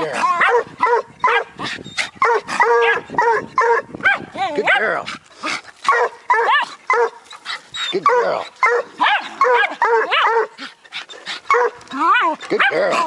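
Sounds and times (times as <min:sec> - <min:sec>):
dogs barking rapidly: 0:00.0 - 0:13.0.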